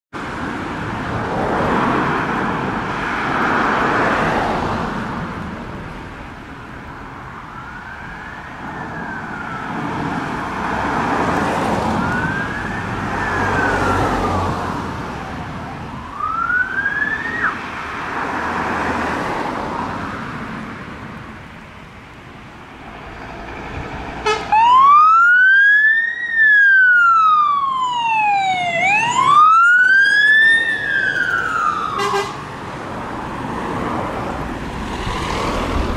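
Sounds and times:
passing cars: 0.1 - 35.9
fire engine wail siren: 7.3 - 17.6, 24.2 - 32.6.

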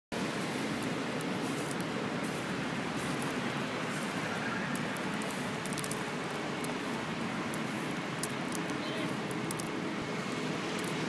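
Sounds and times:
city street rushing noise: 0.1 - 11.0
faint ticks: 4.7 - 6.8, 7.5 - 9.8.

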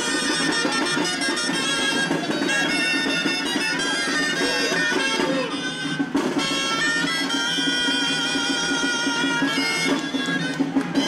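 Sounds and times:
reed pipes playing melody: 0.0 - 11.0.

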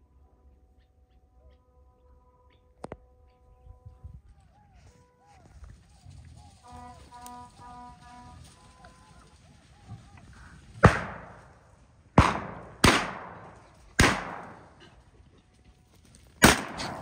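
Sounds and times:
gunshots echoing: 10.0 - 15.0, 16.4 - 17.0.

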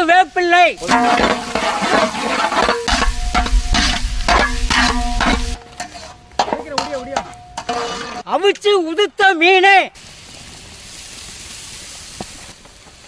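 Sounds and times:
food frying in oil: 0.7 - 6.0, 10.0 - 13.0
paddle scraping frying pan: 0.8 - 8.3.

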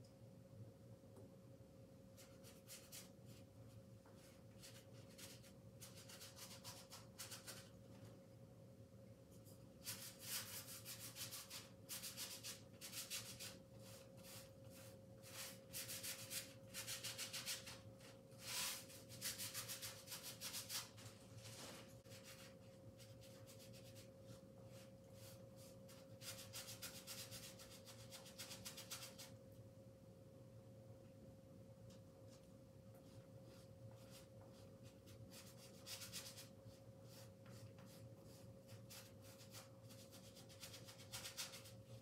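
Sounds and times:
faint steady hum: 0.0 - 42.0
paintbrush scraping canvas: 9.5 - 29.3.

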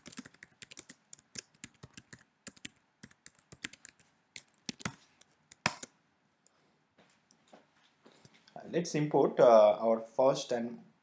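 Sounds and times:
computer keyboard typing: 0.0 - 5.9.

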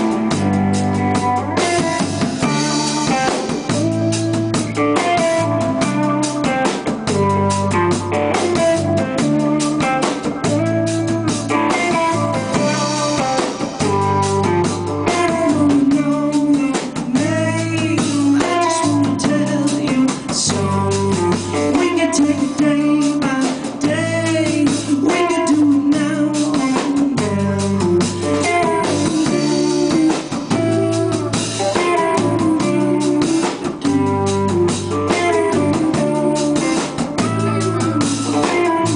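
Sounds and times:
bass guitar: 0.0 - 38.9
distorted electric guitar: 0.0 - 38.9
drum kit beat: 0.0 - 38.9
man singing: 11.7 - 38.9.

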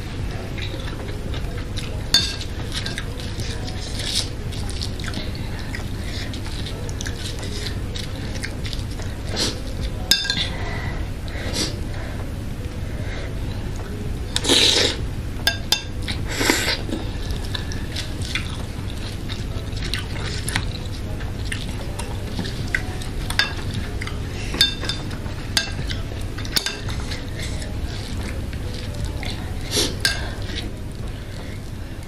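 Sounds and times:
steady low hum: 0.0 - 32.0
slurping noodles: 14.4 - 15.0.

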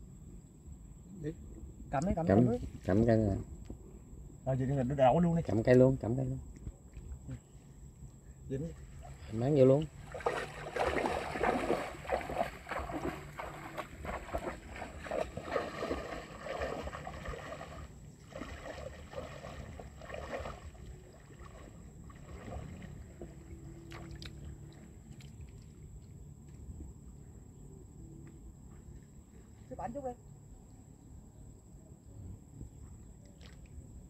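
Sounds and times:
water splashing and sloshing: 8.6 - 27.2, 33.0 - 34.0.

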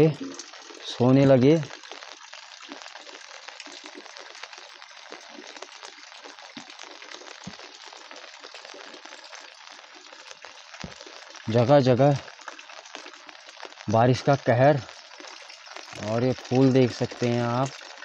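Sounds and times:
rain on leaves: 0.0 - 18.0.

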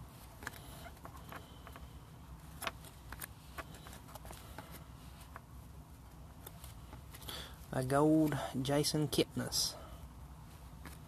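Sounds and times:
low steady hum: 0.0 - 11.0
trading cards clicking and tapping: 0.4 - 5.5.

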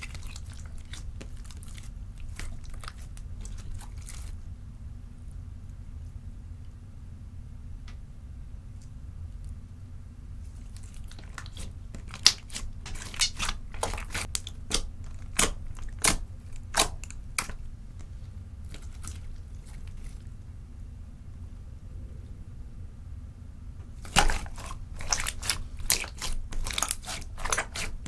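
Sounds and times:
slime squished by hand: 0.0 - 4.4, 10.5 - 20.3, 23.9 - 28.0
steady low hum: 0.0 - 28.0.

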